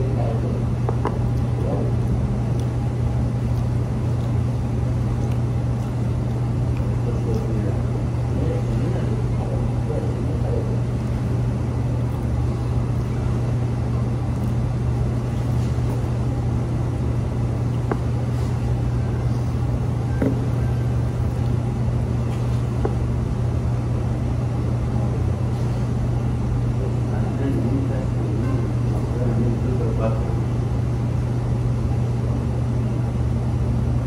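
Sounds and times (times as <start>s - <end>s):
low machine hum: 0.0s - 34.0s.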